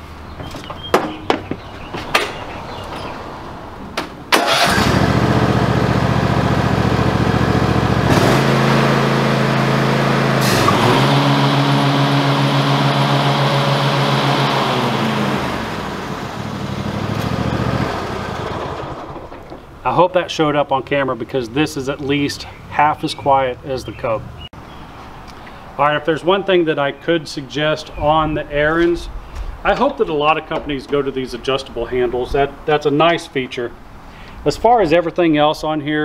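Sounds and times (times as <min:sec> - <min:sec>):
lawn mower engine running: 0:04.3 - 0:19.6.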